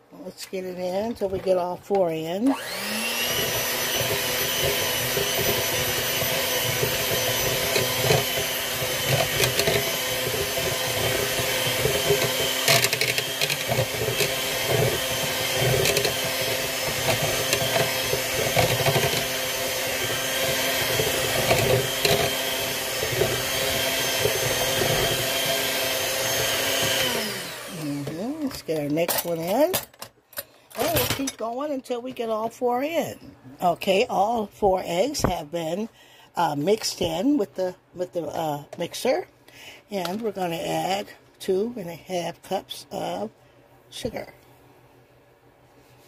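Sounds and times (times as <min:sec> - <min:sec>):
electric hand mixer whirring: 0:01.4 - 0:28.8.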